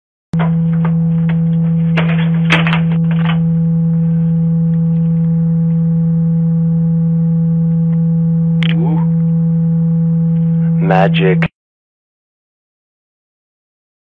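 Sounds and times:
low drone tone: 0:00.4 - 0:11.5.

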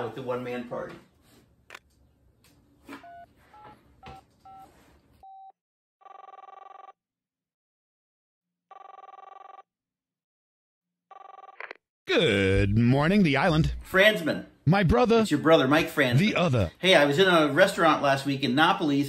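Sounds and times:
phone ringing tone: 0:05.3 - 0:07.0, 0:08.7 - 0:09.7, 0:11.1 - 0:11.6.

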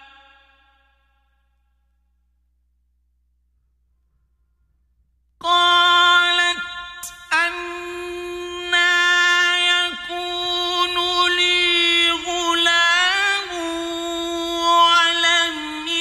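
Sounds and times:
man reciting melodically: 0:05.4 - 0:16.0.

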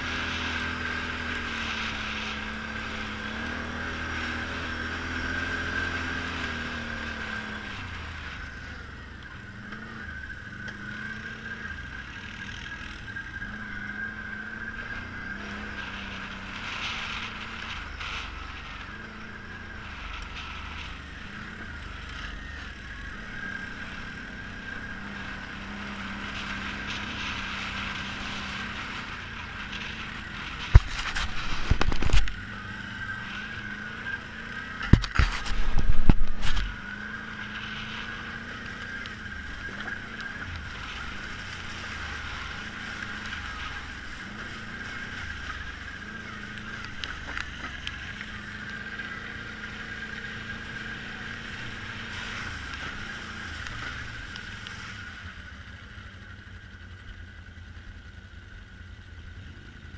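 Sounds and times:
atv engine running: 0:00.0 - 0:59.9
steady high whine: 0:00.0 - 0:59.9.

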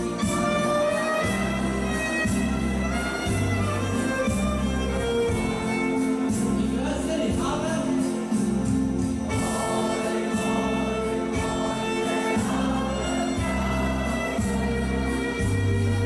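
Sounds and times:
steady beat: 0:00.0 - 0:16.0
sustained bass: 0:00.0 - 0:16.0
people singing: 0:09.3 - 0:15.7.

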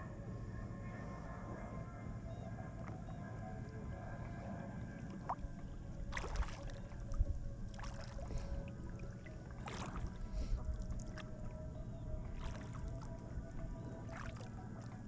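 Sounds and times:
low steady rumble: 0:00.0 - 0:15.0
paddle splashing in water: 0:06.1 - 0:11.3, 0:12.2 - 0:14.5.

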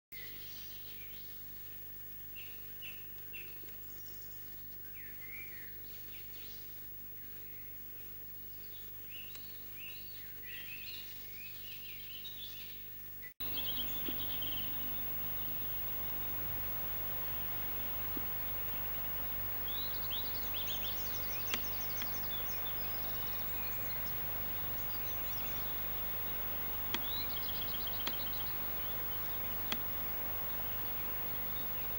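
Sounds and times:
hissy outdoor background: 0:00.2 - 0:31.9
small birds chirping: 0:00.2 - 0:31.9
low hum: 0:13.4 - 0:31.9.

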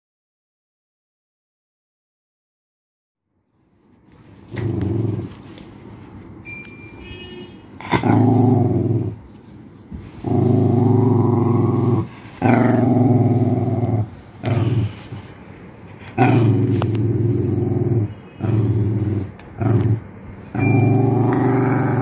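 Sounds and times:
small dog growling: 0:04.5 - 0:05.4, 0:07.8 - 0:09.2, 0:10.2 - 0:15.2, 0:16.0 - 0:22.0.

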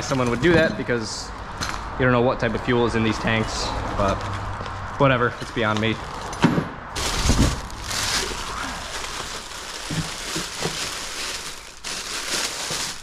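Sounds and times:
plastic bag crinkling: 0:07.0 - 0:13.0.

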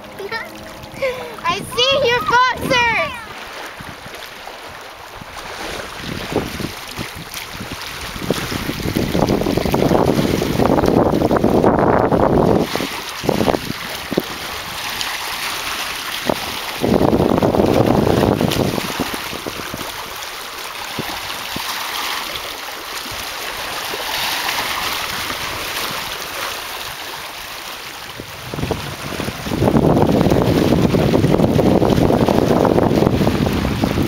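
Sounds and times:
wind buffeting microphone: 0:00.0 - 0:15.0, 0:16.1 - 0:20.2, 0:20.8 - 0:21.8, 0:28.0 - 0:34.0
small waves lapping on rocks: 0:00.0 - 0:34.0.

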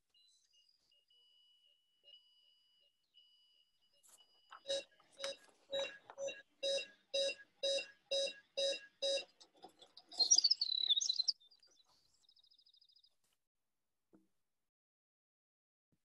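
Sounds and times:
alarm clock beeping: 0:01.0 - 0:09.4
bird warbling chirp: 0:09.9 - 0:13.0.

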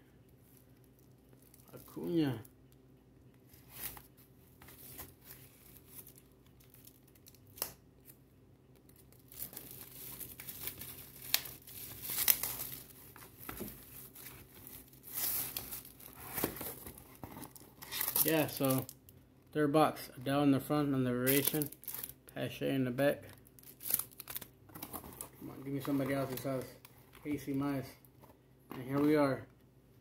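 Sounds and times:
plastic wrap tearing and crackling: 0:08.8 - 0:16.9, 0:21.3 - 0:22.2, 0:23.6 - 0:24.6.

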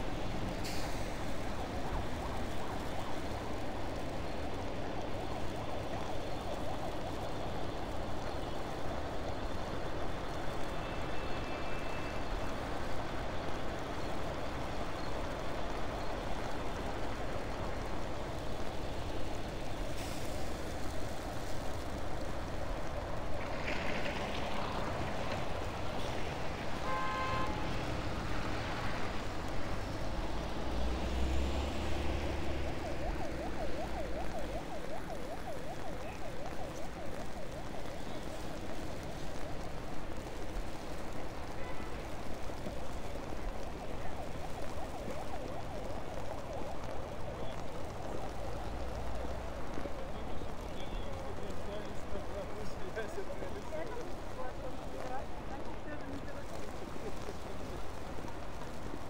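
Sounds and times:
cars driving on slushy road: 0:00.0 - 0:59.0
deep rumble of passing vehicle: 0:27.4 - 0:36.0.

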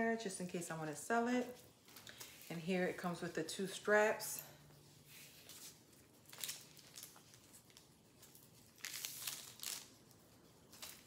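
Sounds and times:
plastic wrapping crinkling: 0:05.4 - 0:11.0.

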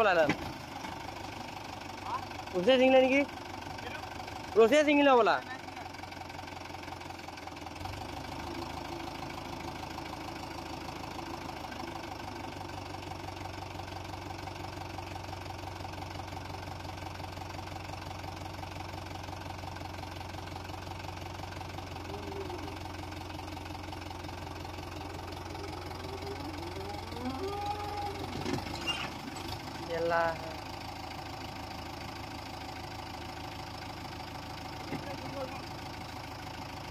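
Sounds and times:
tractor diesel engine running: 0:00.0 - 0:36.9.

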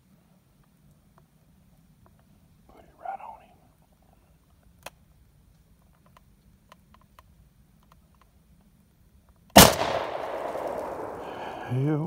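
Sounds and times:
shotgun blast with echo: 0:09.6 - 0:11.8.

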